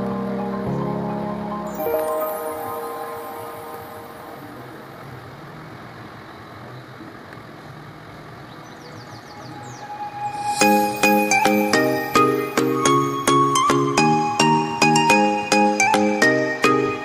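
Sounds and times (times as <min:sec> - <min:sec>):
background music: 0:00.0 - 0:05.0, 0:09.8 - 0:17.0
noisy hiss: 0:00.0 - 0:17.0.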